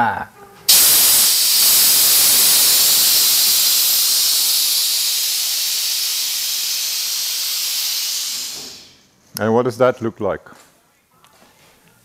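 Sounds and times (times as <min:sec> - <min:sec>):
air hissing from airbags: 0:00.7 - 0:09.0.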